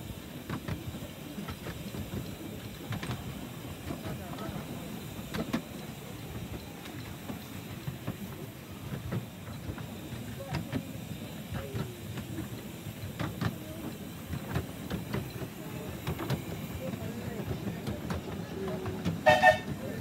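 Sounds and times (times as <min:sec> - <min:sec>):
miniature steam train rumble: 0:00.0 - 0:20.0.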